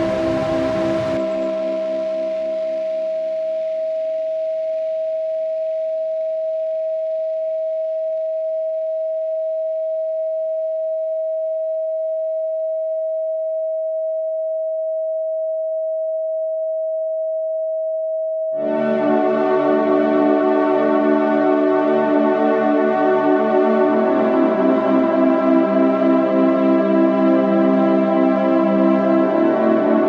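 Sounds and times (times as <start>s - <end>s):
ambient synthesizer music: 0.0s - 3.5s, 18.6s - 30.0s
faint ambient tones: 0.0s - 3.8s, 18.6s - 30.0s
steady electronic sine tone: 0.0s - 17.7s, 18.4s - 30.0s.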